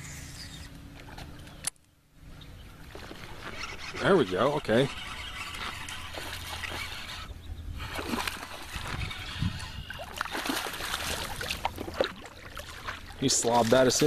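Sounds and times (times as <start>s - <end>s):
fish thrashing and splashing water: 7.8s - 14.0s.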